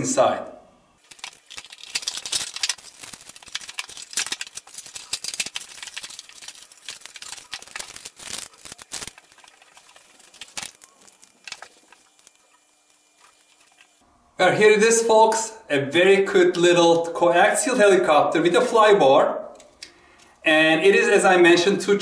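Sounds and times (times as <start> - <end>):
packaging rustling and crinkling: 1.0 - 14.0.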